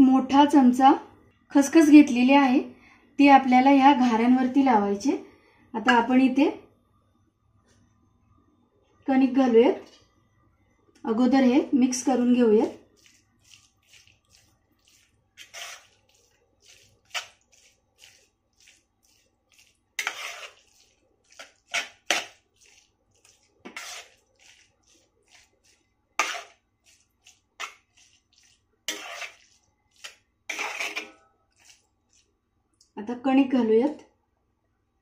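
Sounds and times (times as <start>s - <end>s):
metal spoon scraping metal dish: 14.8s - 18.8s, 19.5s - 25.4s, 26.2s - 26.6s, 28.9s - 31.8s.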